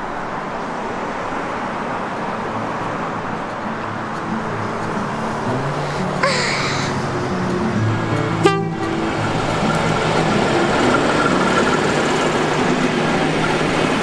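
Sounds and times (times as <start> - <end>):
train passing on rails: 0.0 - 14.0
sharp clack of wheels on track: 6.9 - 14.0.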